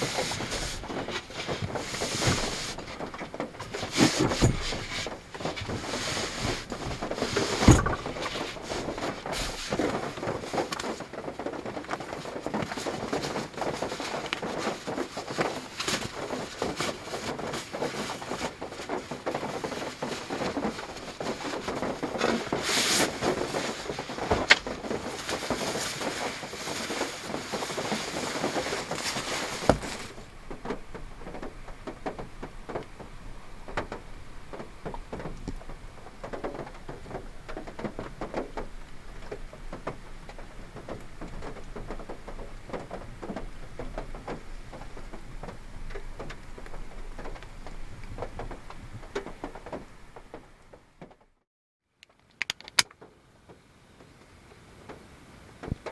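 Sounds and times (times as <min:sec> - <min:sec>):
sleeping bag rustling and crinkling: 0:00.0 - 0:50.2
sharp clicks: 0:52.0 - 0:53.0.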